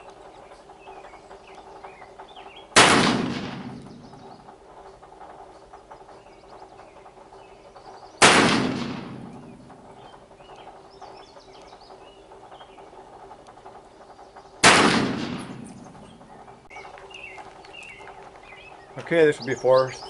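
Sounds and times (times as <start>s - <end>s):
revolver gunshots: 2.8s - 4.2s, 8.2s - 9.8s, 14.6s - 16.0s.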